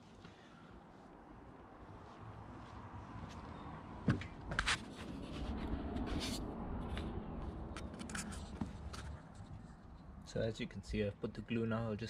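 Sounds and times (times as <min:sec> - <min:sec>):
rubbing and scraping handling noise: 0:04.5 - 0:07.2, 0:07.8 - 0:09.9.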